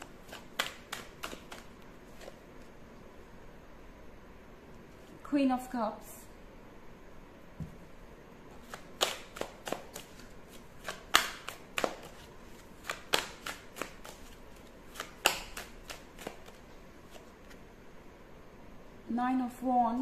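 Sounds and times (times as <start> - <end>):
cards being shuffled: 0.0 - 2.7, 8.6 - 17.6.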